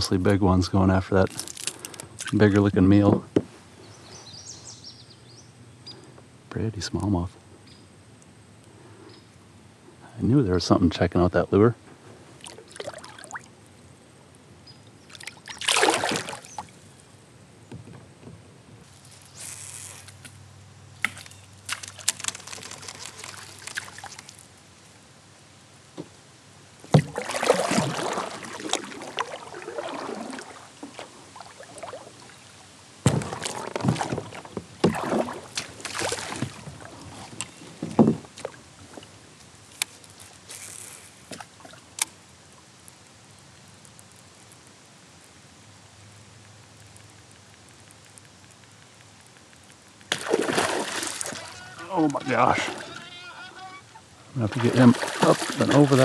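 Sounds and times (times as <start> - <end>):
water sloshing and splashing: 12.3 - 13.5, 15.1 - 16.8, 21.0 - 24.5, 26.8 - 42.1, 50.1 - 53.2, 54.3 - 56.0
knocks on boat: 33.0 - 35.1, 37.8 - 38.3.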